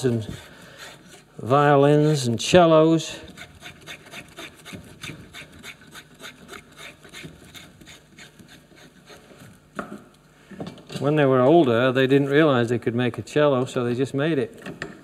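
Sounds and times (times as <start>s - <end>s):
spokeshave rasping wood: 0.0s - 2.3s, 3.1s - 9.7s.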